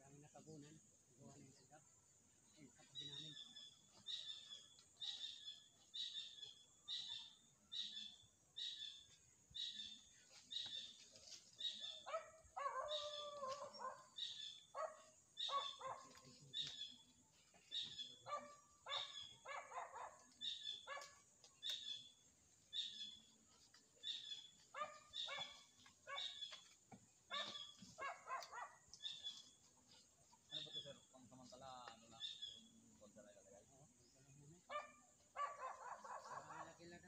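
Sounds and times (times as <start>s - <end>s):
dog barking: 11.8s - 16.2s, 18.2s - 21.3s, 24.7s - 26.4s, 27.3s - 28.9s, 34.7s - 36.8s
dog yelping: 12.1s - 14.0s.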